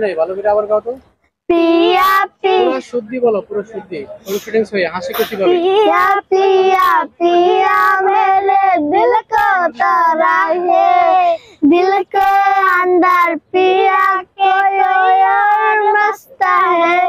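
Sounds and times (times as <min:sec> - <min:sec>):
girls singing unaccompanied: 0:01.5 - 0:02.8, 0:05.3 - 0:17.0.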